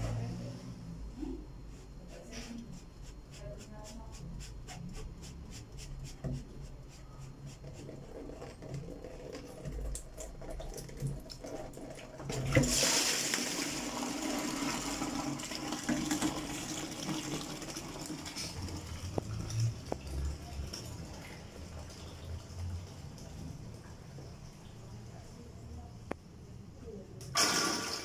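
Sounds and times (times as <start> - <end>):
water gushing into plastic bucket: 7.7 - 23.8, 27.3 - 28.0.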